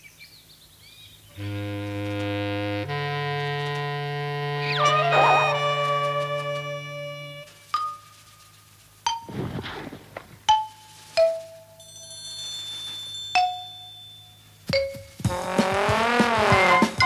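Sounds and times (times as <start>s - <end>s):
faint high held chord: 1.4s - 7.7s.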